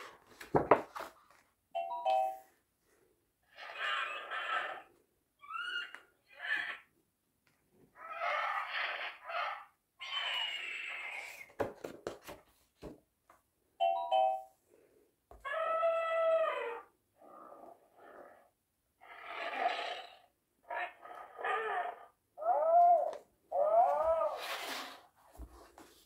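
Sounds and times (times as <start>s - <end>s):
page turning: 0.0s - 1.5s, 24.0s - 26.0s
recorded animal screeches: 3.5s - 6.9s, 8.0s - 11.5s, 19.0s - 24.4s.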